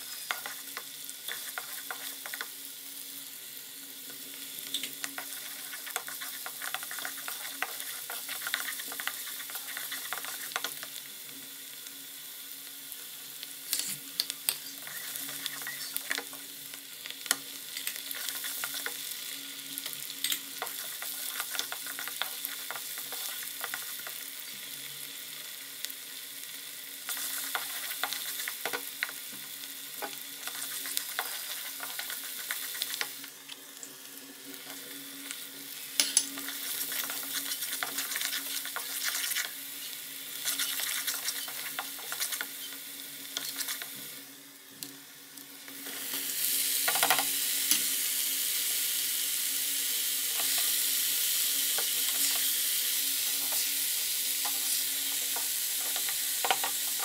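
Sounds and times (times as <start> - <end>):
food sizzling in hot oil: 0.0 - 57.0
wooden spoon scraping pan: 1.3 - 2.4, 5.2 - 10.6.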